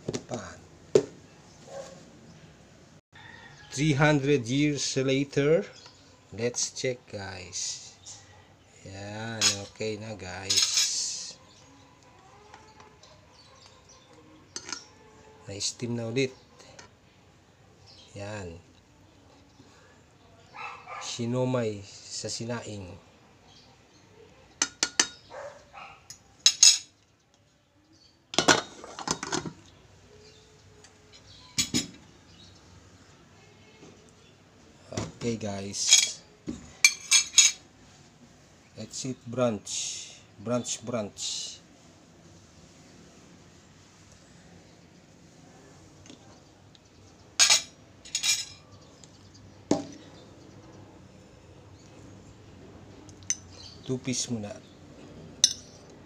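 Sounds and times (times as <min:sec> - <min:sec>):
metal pot and utensils clattering: 0:09.3 - 0:09.8, 0:10.4 - 0:11.3, 0:14.5 - 0:15.1, 0:24.6 - 0:25.2, 0:26.1 - 0:27.0, 0:28.4 - 0:29.7, 0:31.2 - 0:32.1, 0:35.8 - 0:37.6, 0:47.4 - 0:48.7, 0:55.4 - 0:55.8.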